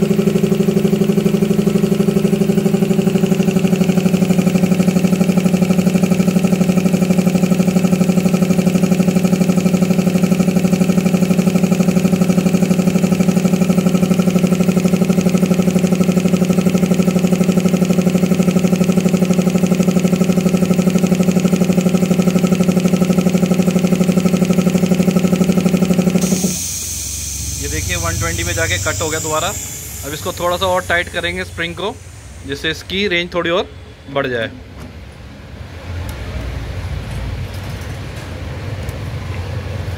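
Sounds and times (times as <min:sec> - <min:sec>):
air compressor running: 0:00.0 - 0:35.8.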